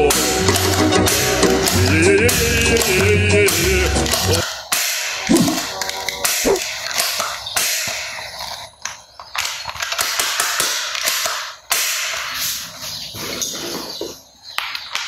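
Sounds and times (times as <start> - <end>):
plastic toys clicking and clattering: 0.0 - 15.0.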